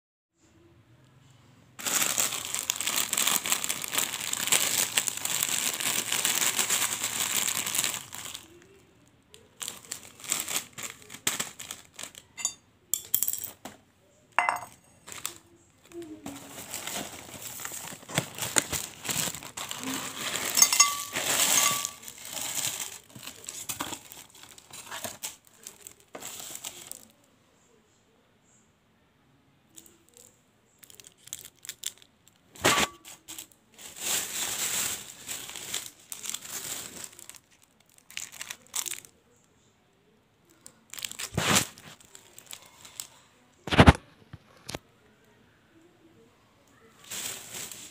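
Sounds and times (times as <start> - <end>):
candy wrappers crinkling: 1.8 - 13.2, 14.4 - 27.3, 29.7 - 39.5, 40.4 - 44.8, 47.0 - 47.9
ceramic bowl clink: 12.4 - 13.2, 14.4 - 15.0, 20.5 - 22.0.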